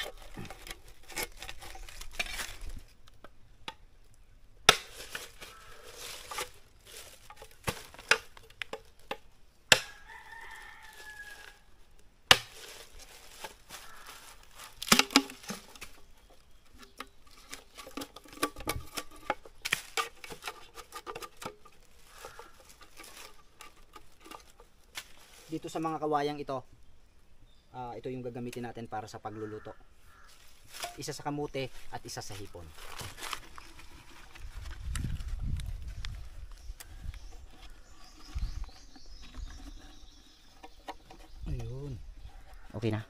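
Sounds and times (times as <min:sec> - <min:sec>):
knife knocking and scraping bamboo: 0:00.0 - 0:03.8, 0:04.6 - 0:11.6, 0:12.3 - 0:26.0, 0:29.6 - 0:35.6, 0:36.6 - 0:43.0
bamboo tubes being handled: 0:00.0 - 0:26.6, 0:28.0 - 0:43.0
rooster crowing: 0:09.8 - 0:11.7.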